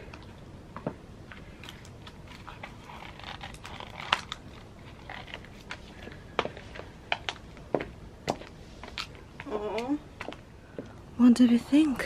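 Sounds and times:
high heels tapping on brick paving: 6.4s - 8.6s.

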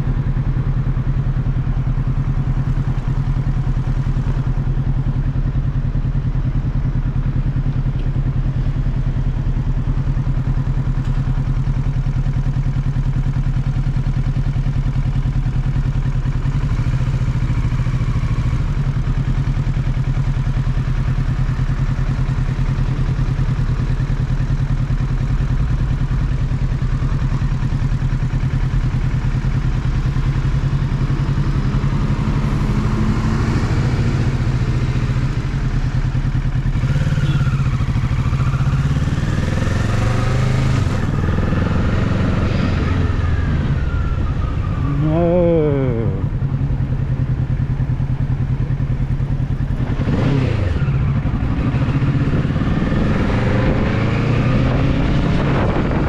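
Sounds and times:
motorcycle engine idling: 0.0s - 54.8s.

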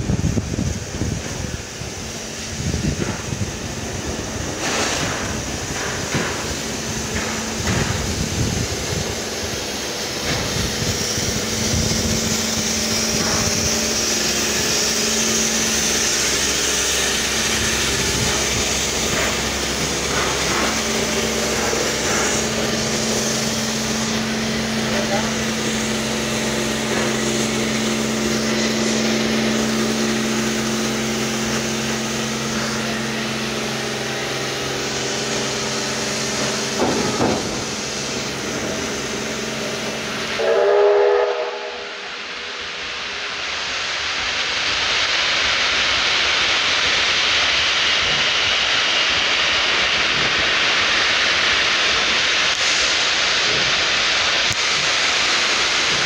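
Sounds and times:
steam locomotive hissing: 0.0s - 56.0s
steam whistle blast: 40.2s - 43.2s.

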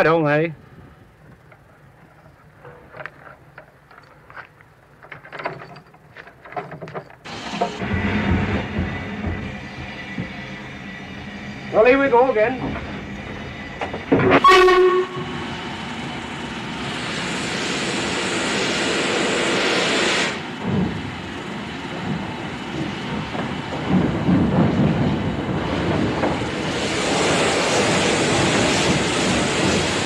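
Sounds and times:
locomotive exhaust puffs: 0.6s - 30.0s
loud steam hiss: 7.3s - 30.0s
steam locomotive whistle: 14.2s - 15.4s.

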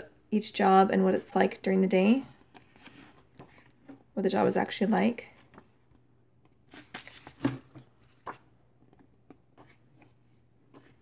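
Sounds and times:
book pages turning: 2.4s - 4.1s, 5.3s - 11.0s.

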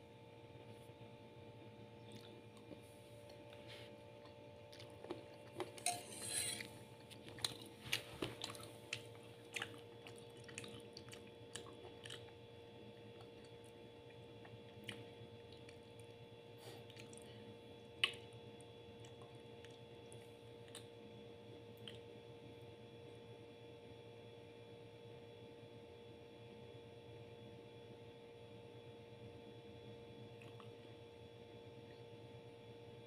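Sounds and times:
steady low hum: 0.0s - 24.3s.

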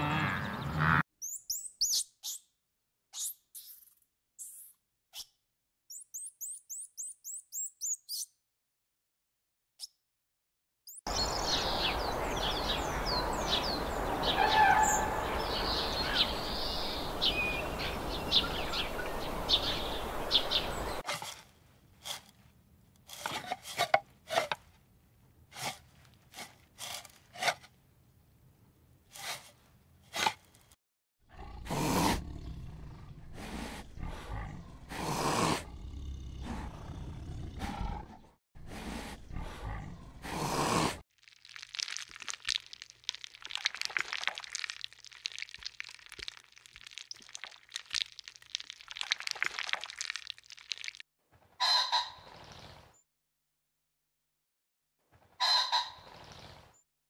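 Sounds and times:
birds chirping: 10.9s - 21.0s, 39.2s - 40.2s
steady outdoor noise: 11.1s - 29.1s
tiger growling: 31.2s - 41.0s.

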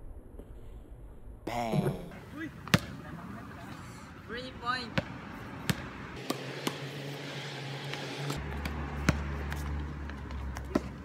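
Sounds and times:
basketball bouncing: 4.9s - 6.9s, 7.9s - 11.0s.

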